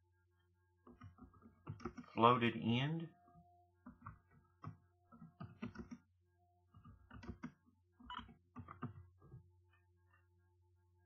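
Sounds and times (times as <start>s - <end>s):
keyboard typing: 0.9s - 2.2s, 3.8s - 6.1s, 6.7s - 9.4s.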